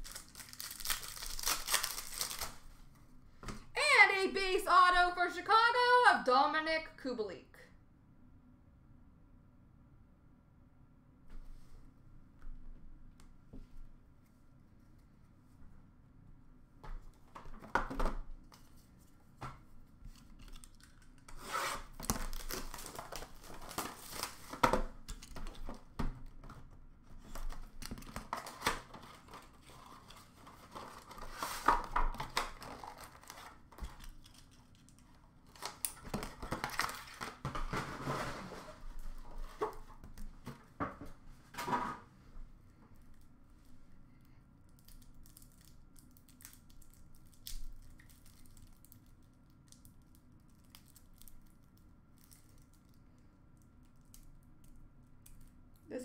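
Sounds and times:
packaging tearing and crinkling: 0.0s - 2.7s, 20.2s - 25.8s, 27.3s - 37.4s.

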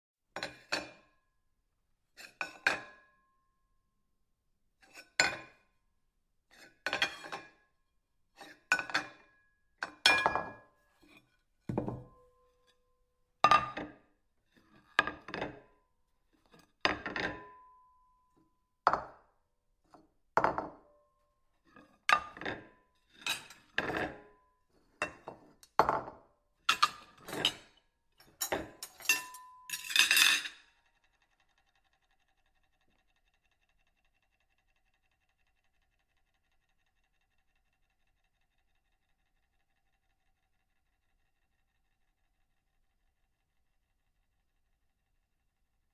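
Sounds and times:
ceramic plate clinking: 25.0s - 30.6s.

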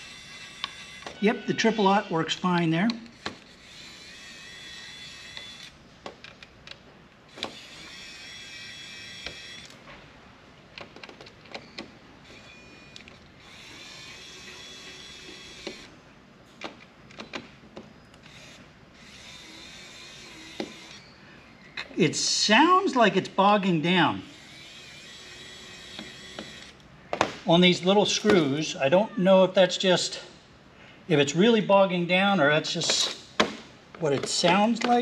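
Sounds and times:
electric screwdriver whining: 0.0s - 5.8s, 7.3s - 9.8s, 11.6s - 15.9s, 18.2s - 21.6s, 24.3s - 26.8s.

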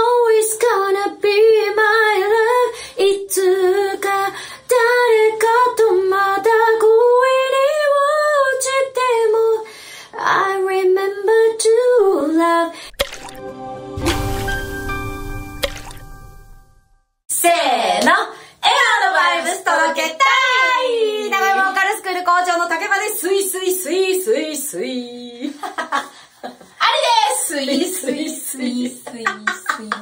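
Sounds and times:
woman singing unaccompanied: 0.0s - 9.6s.

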